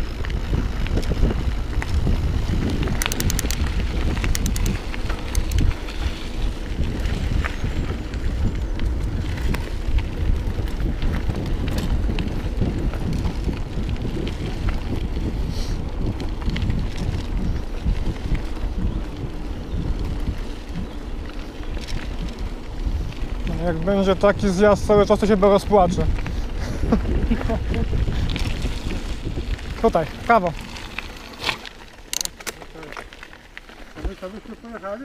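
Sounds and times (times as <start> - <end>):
wind rushing over microphone: 0.0 - 32.1
bike rattling over stones: 0.0 - 35.0.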